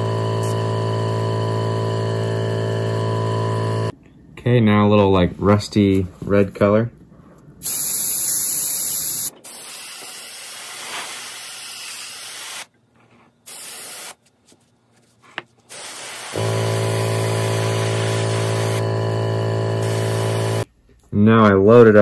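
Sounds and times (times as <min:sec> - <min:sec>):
airbrush spraying hiss: 0:07.6 - 0:12.7, 0:13.5 - 0:14.2, 0:15.7 - 0:16.4, 0:17.4 - 0:18.8, 0:19.8 - 0:20.7.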